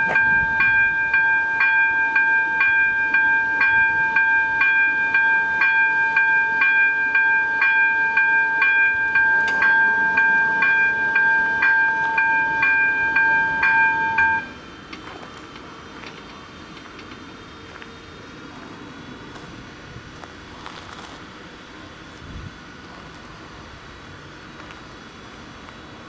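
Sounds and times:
level crossing warning bell ringing: 0.0 - 16.7.

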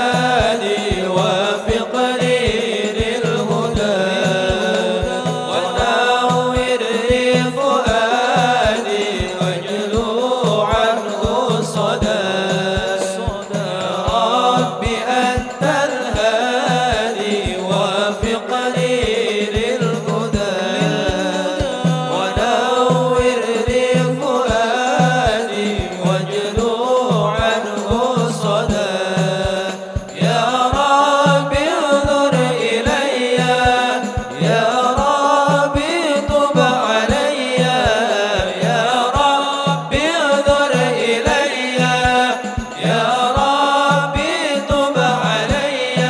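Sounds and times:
frame drums and bass drum: 0.0 - 46.0
men singing: 0.0 - 46.0.

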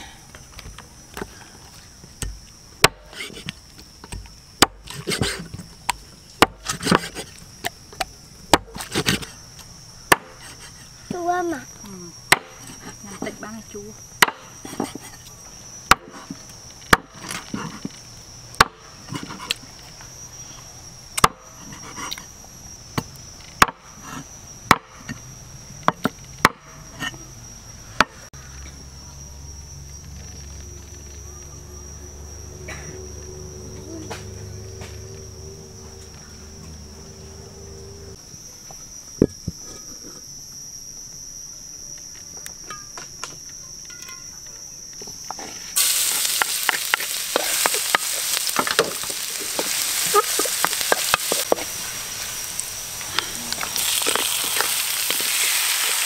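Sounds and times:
high insect drone: 0.0 - 56.0
cleaver chopping on wooden block: 6.4 - 7.2, 10.1 - 10.4, 12.3 - 12.6, 14.2 - 15.0, 15.9 - 16.2, 23.6 - 23.8, 24.7 - 25.0.

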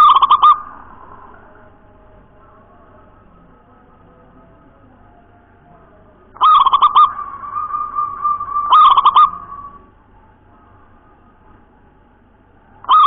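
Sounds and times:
dove cooing: 0.0 - 10.1, 12.8 - 13.0.

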